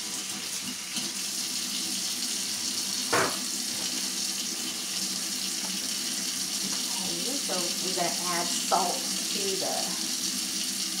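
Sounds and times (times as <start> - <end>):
faucet running into pot: 0.0 - 11.0
short knock: 3.1 - 3.4.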